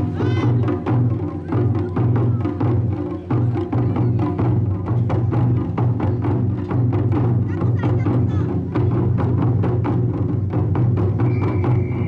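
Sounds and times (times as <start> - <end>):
drums played at quick beat: 0.0 - 12.0.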